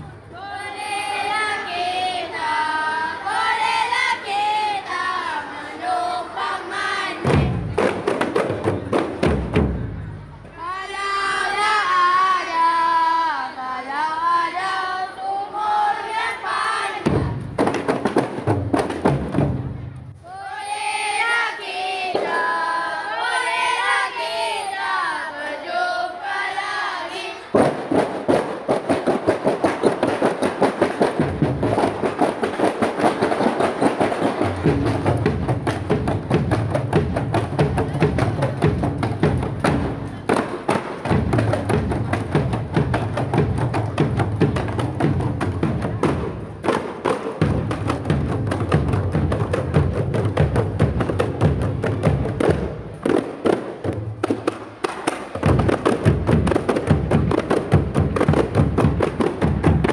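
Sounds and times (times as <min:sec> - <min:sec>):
voices chanting together: 0:00.0 - 0:08.0, 0:10.6 - 0:17.6, 0:20.2 - 0:27.6
frame drums in fast rhythm: 0:07.2 - 0:10.3, 0:17.0 - 0:19.8, 0:27.5 - 0:59.9.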